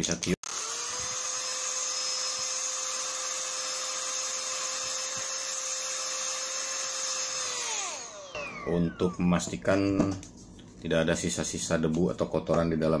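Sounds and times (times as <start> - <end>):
electric air duster whining: 0.4 - 9.8.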